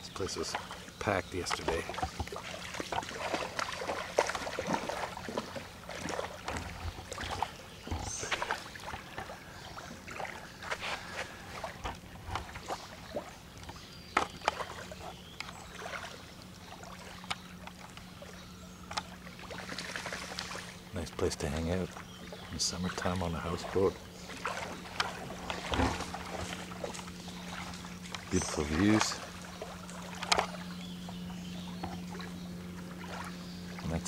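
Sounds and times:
faint low hum: 0:00.0 - 0:34.0
lake waves lapping on shore: 0:00.0 - 0:34.0.

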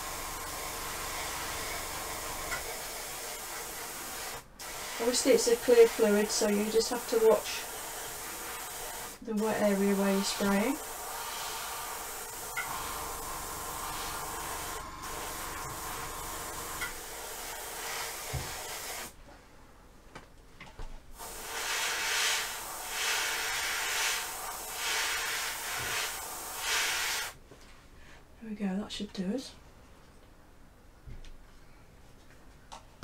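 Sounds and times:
airbrush hissing: 0:00.0 - 0:19.1, 0:21.2 - 0:27.4.

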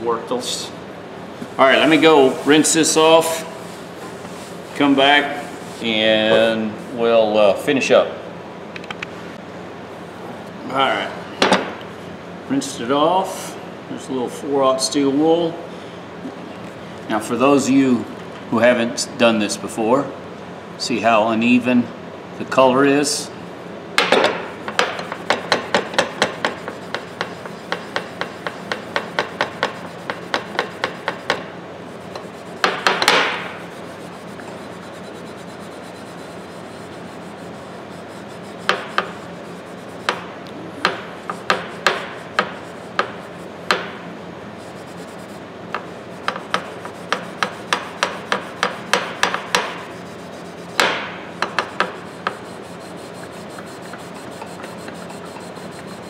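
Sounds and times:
steel wool scrubbing metal: 0:25.3 - 0:40.2, 0:44.6 - 0:50.9, 0:51.5 - 0:56.0.

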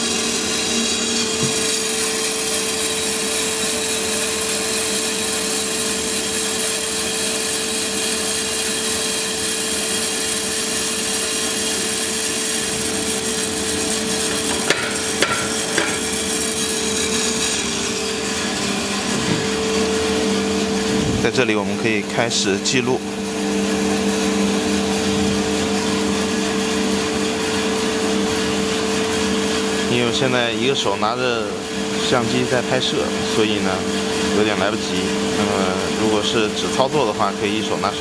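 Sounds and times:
drum and fan hum: 0:00.0 - 0:38.0.

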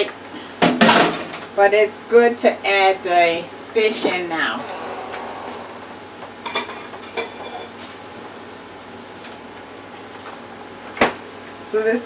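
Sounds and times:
dishes clinking: 0:06.4 - 0:07.8.

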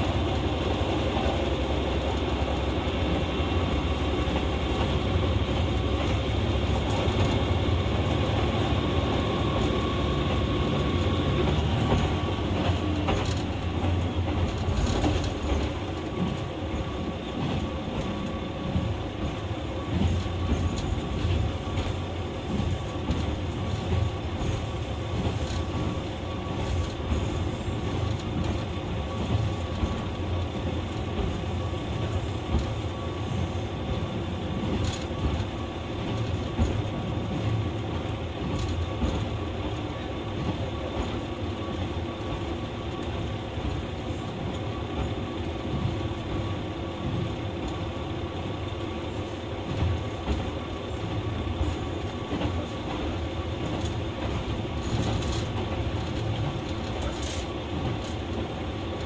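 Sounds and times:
diesel railcar rumbling: 0:00.0 - 0:59.0.

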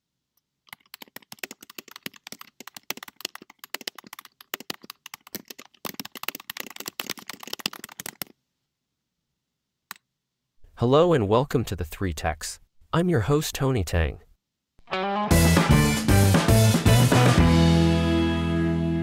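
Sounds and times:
fast typing on keyboard: 0:00.7 - 0:08.4.

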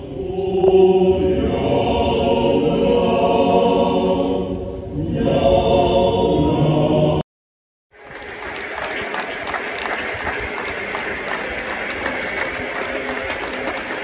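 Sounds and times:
crowd singing in unison: 0:00.0 - 0:07.2.

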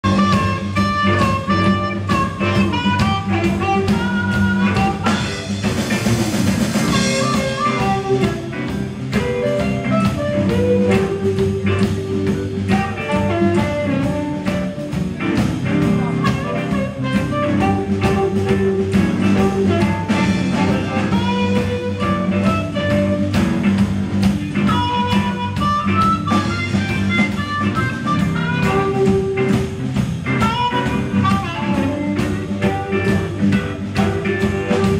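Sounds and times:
amplified harmonica: 0:00.0 - 0:05.6, 0:06.8 - 0:15.2, 0:24.6 - 0:29.6, 0:30.3 - 0:34.9
drum kit: 0:00.0 - 0:34.9
electric and acoustic guitars: 0:00.0 - 0:34.9.

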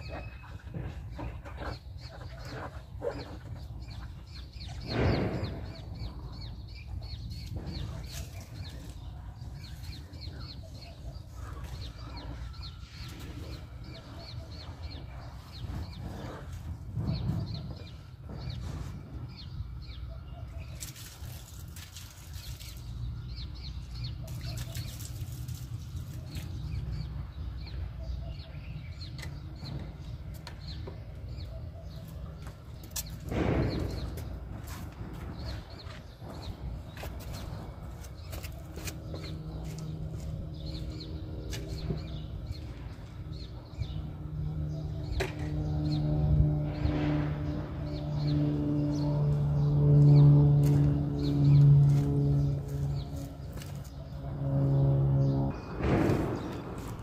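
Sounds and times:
birds chirping: 0:00.0 - 0:57.0
steady low rumble: 0:25.6 - 0:57.0.

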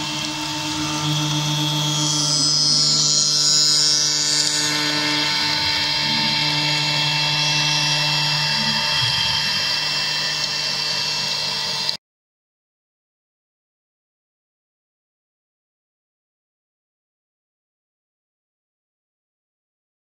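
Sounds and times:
router spindle whining while cutting: 0:00.0 - 0:12.0.

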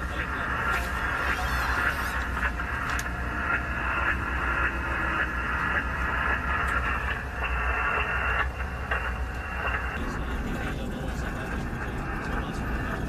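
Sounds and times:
boat engine pulsing rumble: 0:00.0 - 0:13.0.

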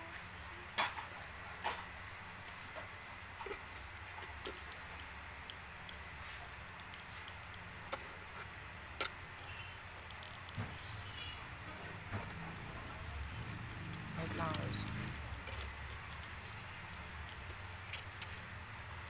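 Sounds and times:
plastic toy parts clicking: 0:03.9 - 0:11.4, 0:12.0 - 0:19.0.

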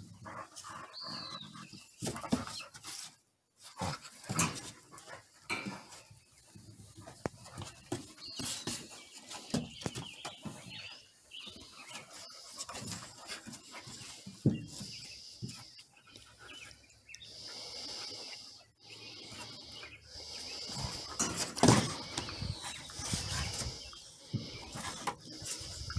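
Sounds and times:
paws scuffling on wooden boards: 0:00.3 - 0:16.7.

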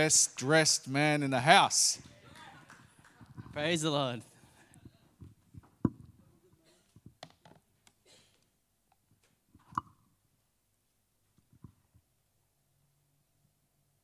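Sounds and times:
microphone handling clicks and knocks: 0:04.8 - 0:06.2, 0:06.9 - 0:08.0.

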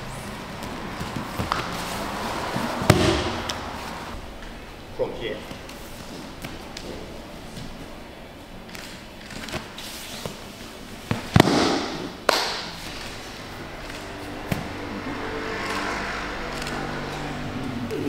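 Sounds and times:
bodies slapping on mat: 0:00.5 - 0:01.8, 0:02.6 - 0:03.8, 0:11.0 - 0:12.8.

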